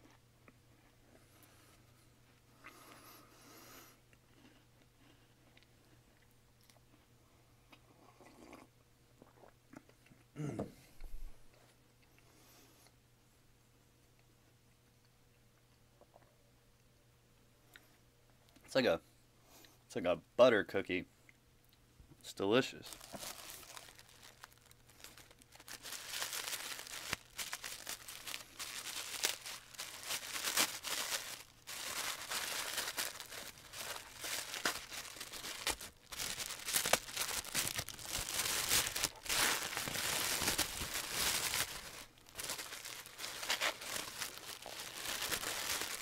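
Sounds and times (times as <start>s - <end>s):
wrapping paper crinkling and tearing: 22.8s - 46.0s.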